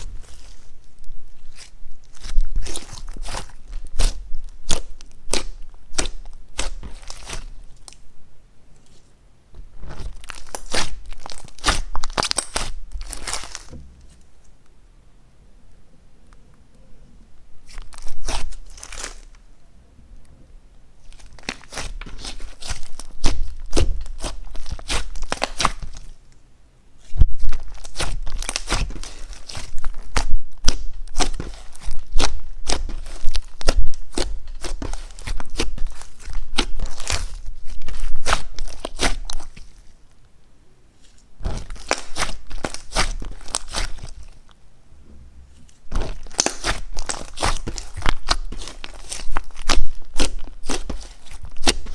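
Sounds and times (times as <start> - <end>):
slime popping and crackling: 0.0 - 8.0, 9.7 - 13.8, 17.6 - 19.3, 21.0 - 26.2, 27.0 - 39.9, 41.4 - 44.5, 45.7 - 51.9.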